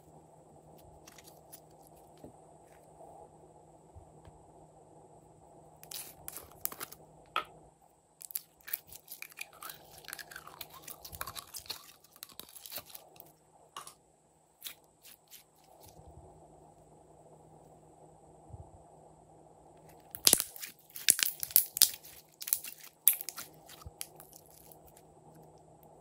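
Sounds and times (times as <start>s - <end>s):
slime squishing and popping: 5.8s - 7.0s, 8.2s - 13.3s, 20.1s - 25.0s
plastic container crackling: 8.2s - 13.2s, 20.2s - 25.0s.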